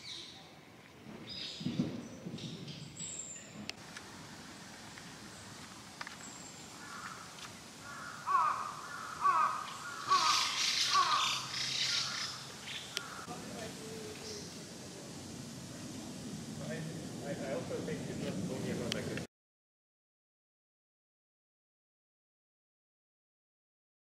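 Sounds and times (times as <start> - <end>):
crow cawing: 6.8 - 13.4.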